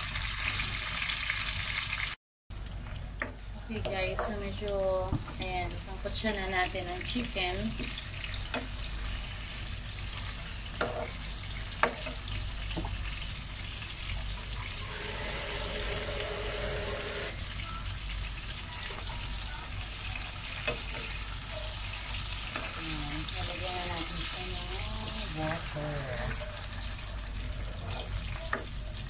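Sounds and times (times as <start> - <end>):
meat and onions sizzling in a pan: 0.0 - 29.0.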